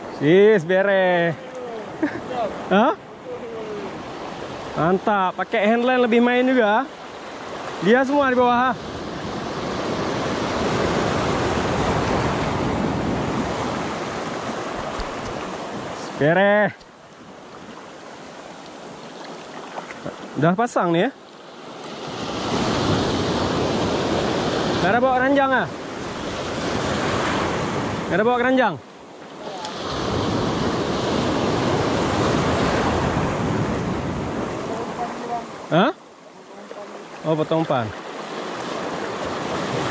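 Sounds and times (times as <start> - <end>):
surf breaking over rocks: 3.5 - 16.7
sea waves breaking on rocks: 3.7 - 20.5, 21.2 - 35.8, 36.5 - 39.9.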